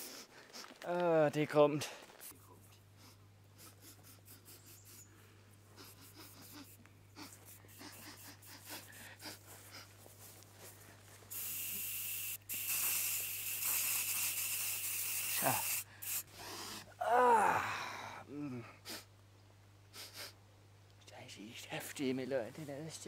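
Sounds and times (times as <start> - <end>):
aerosol spray hissing: 11.3 - 16.3.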